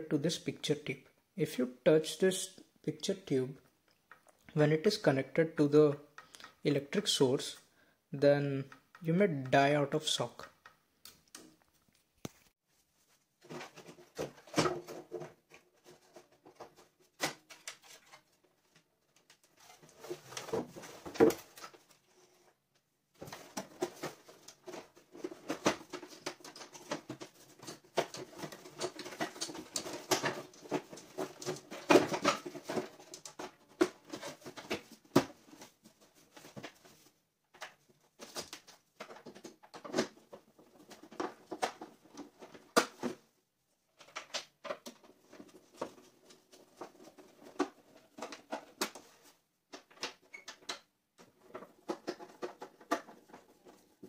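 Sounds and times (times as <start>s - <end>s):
plastic casing knocking and scraping: 13.4s - 18.4s, 23.2s - 43.3s, 44.0s - 54.0s.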